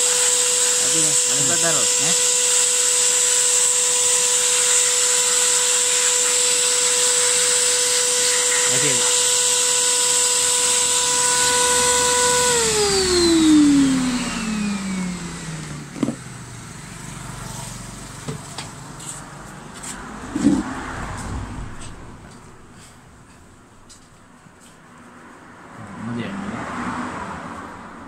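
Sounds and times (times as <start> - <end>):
cleaner motor whining: 0.0 - 18.7.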